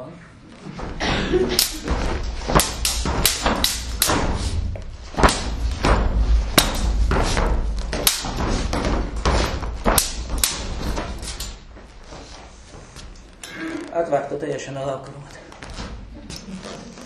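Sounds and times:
footsteps thumping on stage boards: 0:00.6 - 0:13.4.

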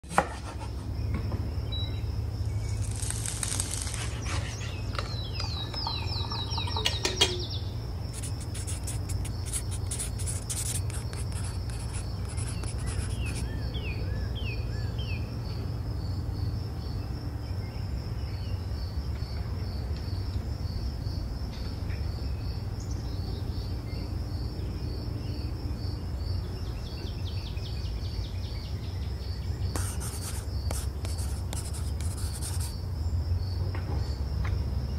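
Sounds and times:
pulsing insect trill: 0:01.5 - 0:13.6
birds chirping: 0:04.1 - 0:07.8.

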